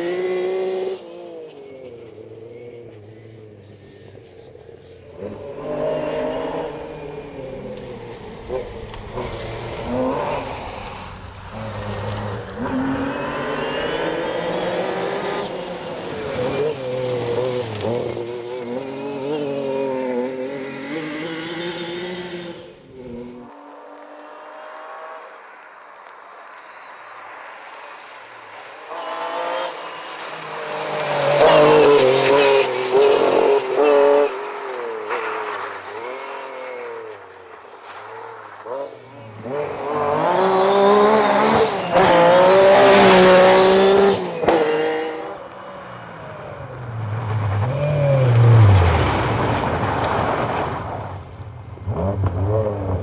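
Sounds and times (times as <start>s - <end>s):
rally car engine revving: 5.2s - 25.2s, 28.9s - 37.2s, 38.4s - 51.1s, 51.8s - 53.0s
car engine accelerating: 38.6s - 53.0s
exhaust crack: 45.9s - 53.0s.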